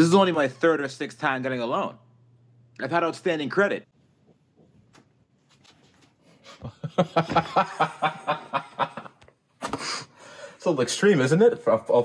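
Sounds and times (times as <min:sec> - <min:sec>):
person laughing: 0:06.4 - 0:10.0.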